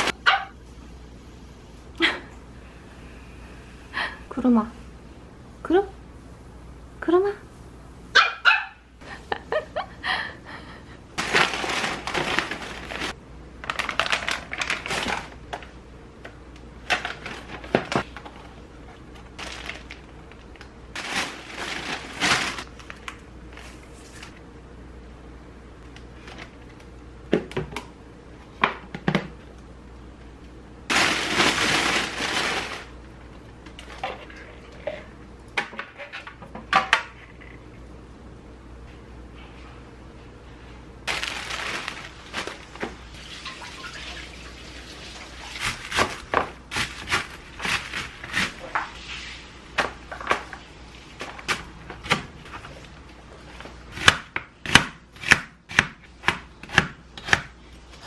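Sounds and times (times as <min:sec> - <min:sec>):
plastic bags rustling: 0:11.2 - 0:15.7, 0:16.8 - 0:18.5, 0:19.1 - 0:24.3, 0:30.9 - 0:33.2, 0:41.0 - 0:49.2.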